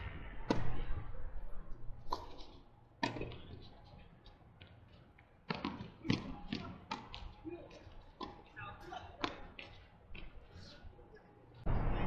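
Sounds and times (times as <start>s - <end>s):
tennis ball hit by rackets: 3.0s - 3.4s, 5.5s - 7.2s.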